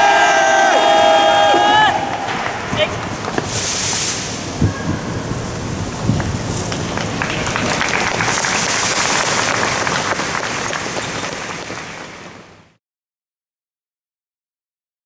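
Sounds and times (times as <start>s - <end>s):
crowd applauding: 0.0s - 3.4s, 6.1s - 12.5s.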